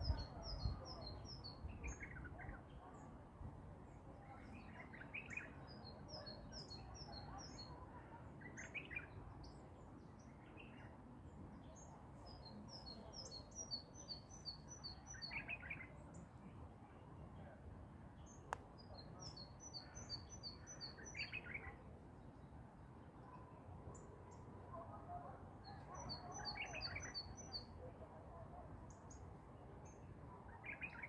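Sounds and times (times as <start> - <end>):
songbirds singing high repeated notes: 0.0 - 3.2, 3.8 - 31.0
lower bird chirps: 11.6 - 16.3, 18.2 - 21.8, 25.6 - 27.7.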